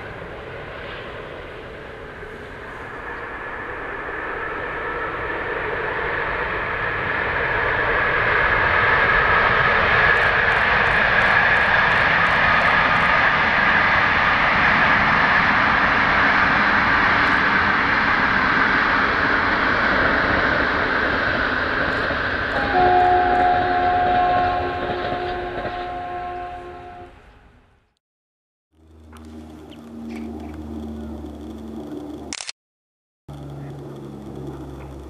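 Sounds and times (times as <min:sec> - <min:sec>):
train wheels rolling on rails: 0:00.1 - 0:26.0, 0:33.3 - 0:35.0.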